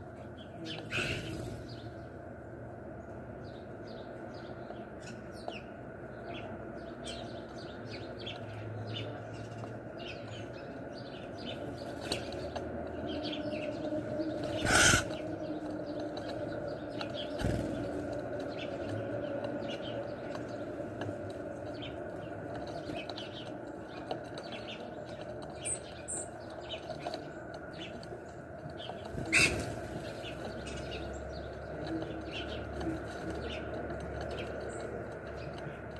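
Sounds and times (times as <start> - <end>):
birds chirping: 0.0 - 35.9.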